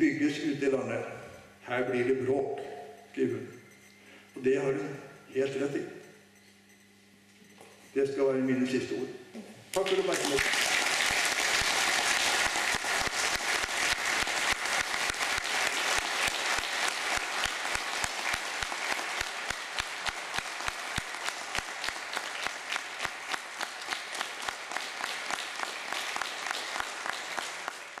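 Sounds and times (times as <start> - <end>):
rhythmic clapping: 9.7 - 28.0
audience applauding: 9.8 - 28.0.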